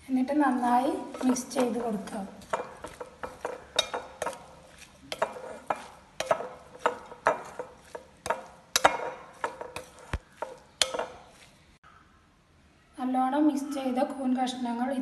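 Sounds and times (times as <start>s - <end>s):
spoon scraping a glass bowl: 1.0s - 11.5s.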